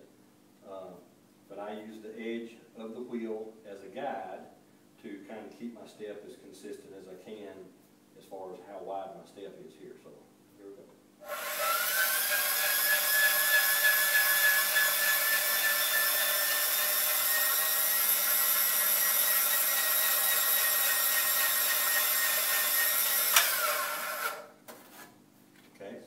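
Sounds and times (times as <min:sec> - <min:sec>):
electric bead roller motor whine: 0:11.3 - 0:24.5
sharp click: 0:23.3 - 0:23.6.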